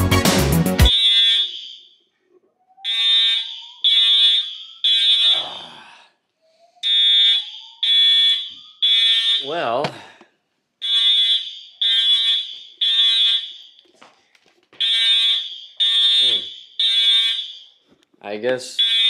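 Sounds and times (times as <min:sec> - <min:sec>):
music: 0:00.0 - 0:00.9
fire alarm beeps: 0:00.9 - 0:02.1, 0:02.8 - 0:05.6, 0:06.4 - 0:09.6, 0:10.8 - 0:13.9, 0:14.8 - 0:17.8, 0:18.8 - 0:19.0.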